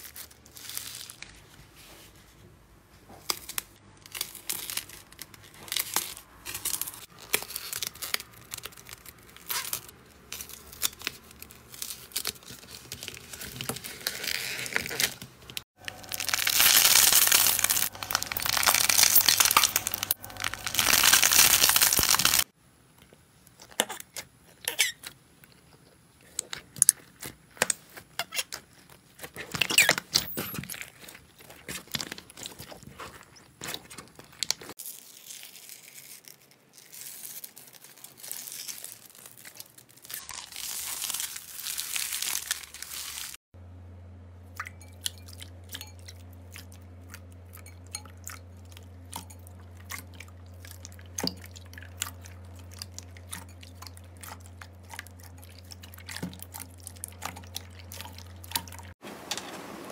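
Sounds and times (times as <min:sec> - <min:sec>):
slime squishing: 0:03.3 - 0:22.5, 0:30.7 - 0:36.2, 0:44.5 - 0:59.0
slime crackling: 0:04.1 - 0:22.5, 0:31.0 - 0:43.4.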